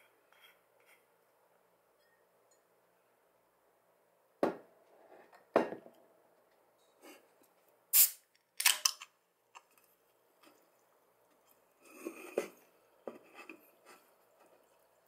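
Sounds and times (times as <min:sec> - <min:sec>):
can ring-pull cracking open: 0:08.0 - 0:09.1.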